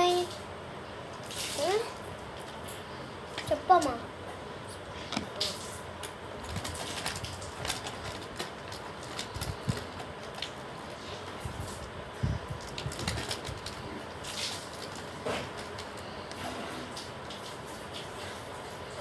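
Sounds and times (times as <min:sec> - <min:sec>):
plastic packets crinkling: 0:05.4 - 0:11.9, 0:12.5 - 0:16.4.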